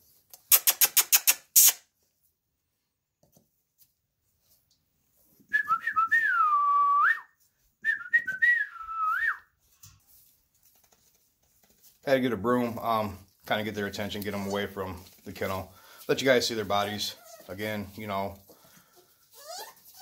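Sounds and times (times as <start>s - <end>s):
person making mouth clicks: 0.3s - 1.8s.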